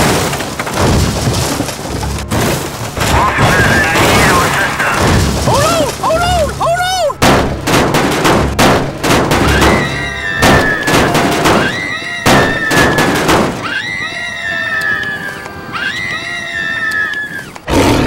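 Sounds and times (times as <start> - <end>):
gunfire-like blasts: 7.2 - 13.6.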